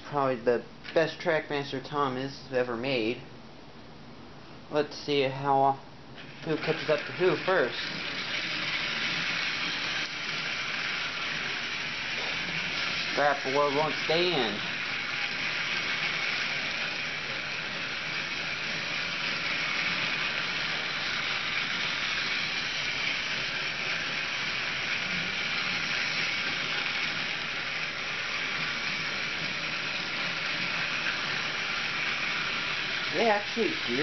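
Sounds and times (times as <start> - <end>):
toy train motors whirring: 6.2 - 34.0.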